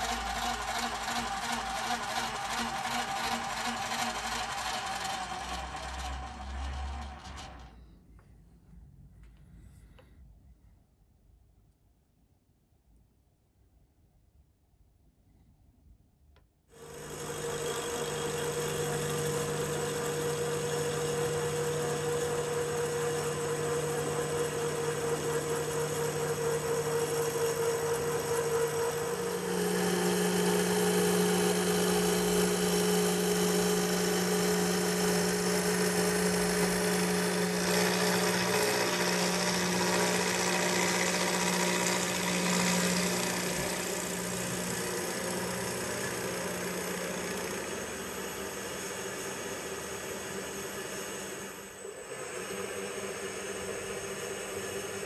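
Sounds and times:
milling machine motor hum: 0.0s - 7.7s, 16.8s - 55.0s.

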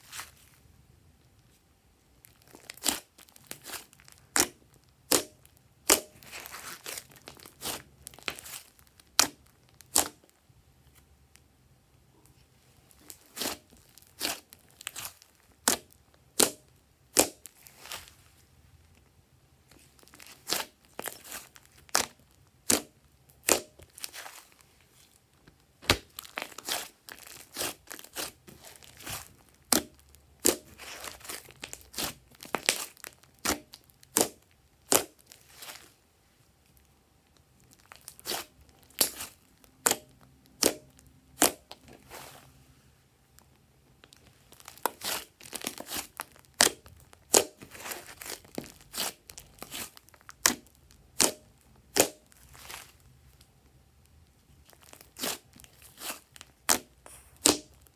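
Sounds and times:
sticky slime pops: 57.4s - 57.8s.

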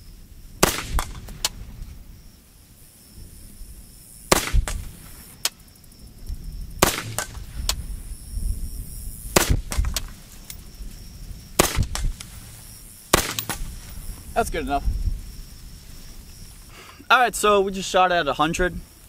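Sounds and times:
rifle shots: 0.6s - 1.6s, 4.3s - 5.0s, 6.8s - 7.5s, 9.3s - 10.1s, 11.6s - 12.2s, 13.1s - 13.8s
faint sharp cracks: 6.8s - 7.8s, 9.4s - 10.6s, 11.6s - 12.4s, 13.1s - 13.9s.

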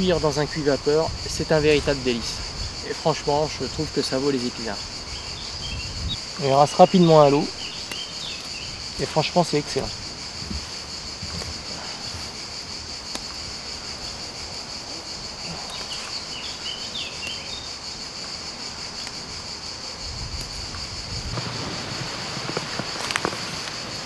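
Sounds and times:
insects buzzing in grass: 0.0s - 24.0s
low rustling: 0.0s - 24.0s.

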